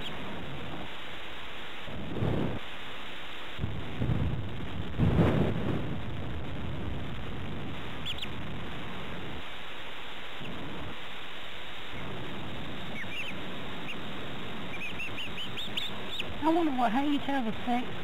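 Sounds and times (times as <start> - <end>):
chicks peeping: 0.0 - 0.9, 7.8 - 9.3, 11.6 - 18.0
steady background hiss: 0.0 - 18.0.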